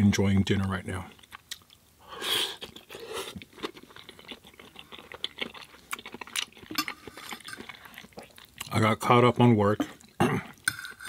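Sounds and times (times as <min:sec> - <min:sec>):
person chewing food: 0:01.1 - 0:08.8, 0:09.8 - 0:10.9.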